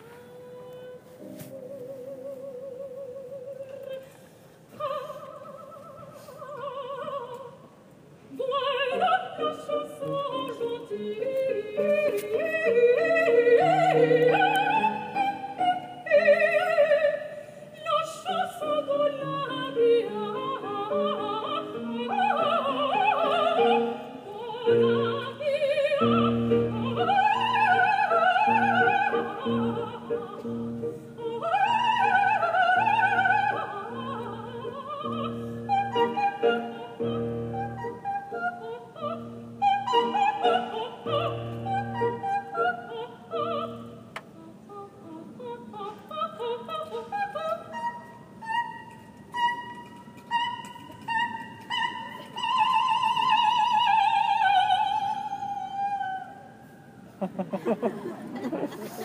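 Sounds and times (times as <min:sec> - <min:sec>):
operatic soprano singing: 0:00.0 - 0:56.8
grand piano: 0:08.4 - 0:44.2.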